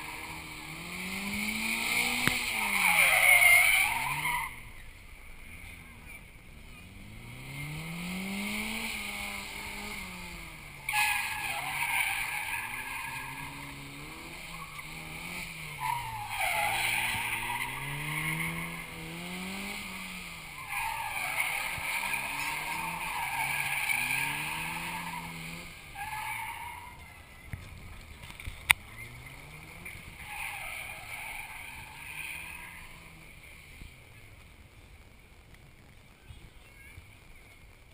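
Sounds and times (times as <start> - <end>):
tyre squeal: 0.0 - 4.8, 10.8 - 27.3, 28.9 - 33.2
car engine revving: 0.0 - 36.0.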